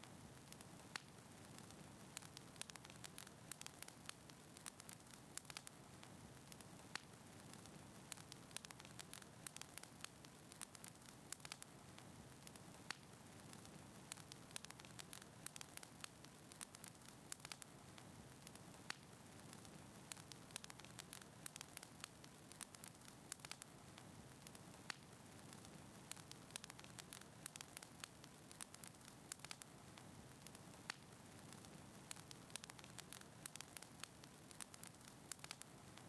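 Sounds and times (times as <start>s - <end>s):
fire crackling and popping: 0.0s - 36.0s.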